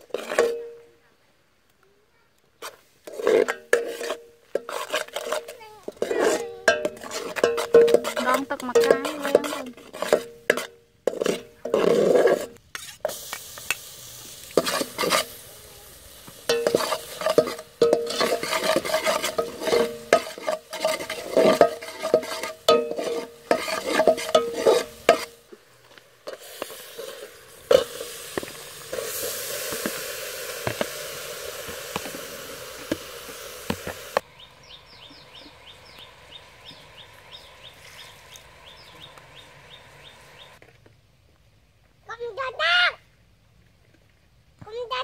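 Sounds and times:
metal ladle scraping a pot: 0.0 - 0.8, 2.6 - 13.2, 14.5 - 34.2
sizzle: 0.0 - 0.9, 3.1 - 40.6
steady hiss: 0.0 - 40.6
sauce bubbling: 12.5 - 40.6.

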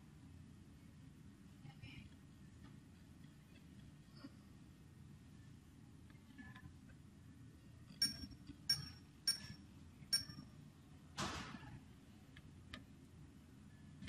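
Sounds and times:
sharp clicks with high ring: 8.0 - 10.5.

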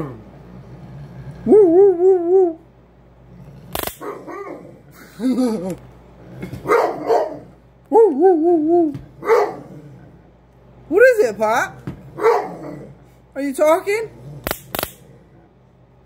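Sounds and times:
dog howling whines: 1.4 - 2.7
sharp snap: 3.7 - 4.0, 14.4 - 15.0
dog grumbling yelps: 4.0 - 5.7, 6.6 - 9.9, 12.1 - 13.0.

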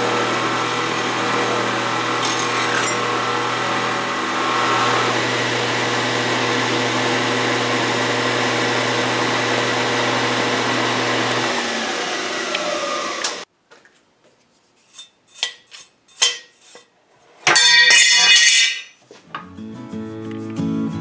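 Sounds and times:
milling machine cutting steel: 0.0 - 13.4
spindle winding down: 0.0 - 13.4.

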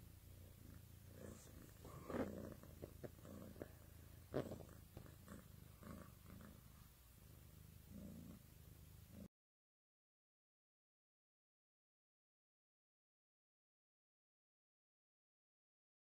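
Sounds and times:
cat purring: 0.0 - 9.3.

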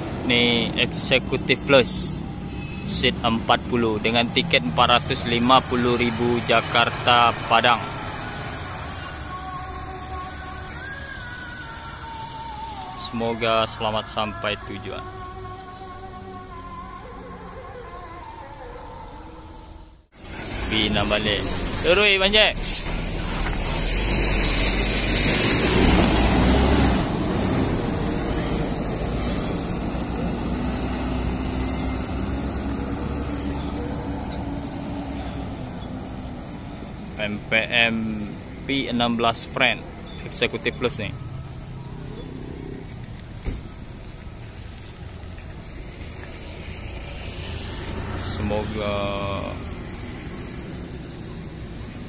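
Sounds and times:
bus engine pulling away: 0.0 - 15.3, 20.2 - 52.0.

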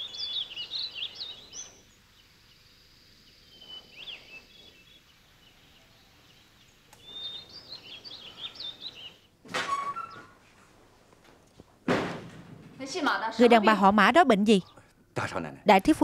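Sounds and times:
small birds chirping: 0.0 - 10.4, 12.8 - 15.1.

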